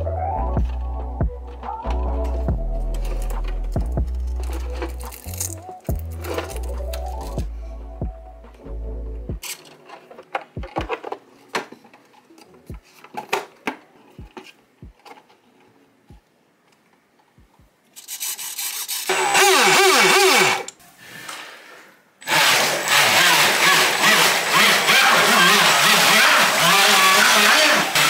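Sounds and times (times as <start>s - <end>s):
electric motor whirring: 18.1s - 20.7s.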